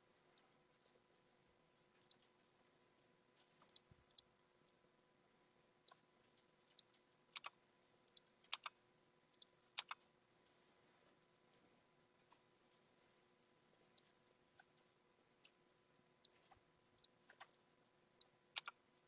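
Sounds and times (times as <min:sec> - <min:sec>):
computer mouse clicking: 0:03.6 - 0:04.3, 0:06.7 - 0:10.0, 0:16.2 - 0:17.6, 0:18.2 - 0:18.8.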